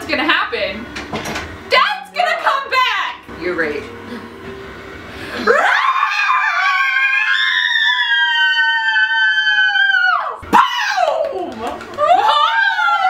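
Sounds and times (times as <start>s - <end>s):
women screaming: 5.4s - 13.0s.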